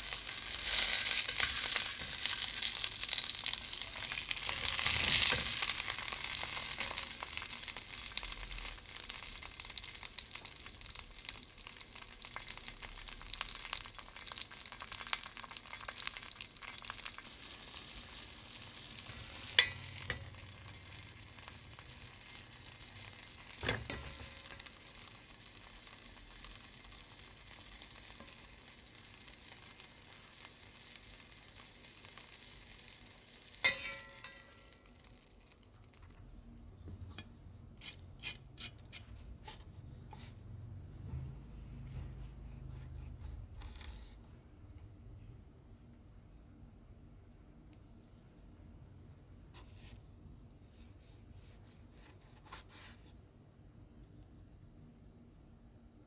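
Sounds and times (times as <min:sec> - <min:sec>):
meat sizzling in a frying pan: 0:00.0 - 0:36.0.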